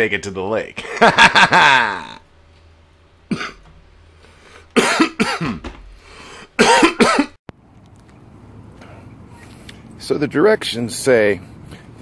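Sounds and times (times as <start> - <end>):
man coughing: 3.3 - 3.7, 4.8 - 5.8, 6.6 - 7.4.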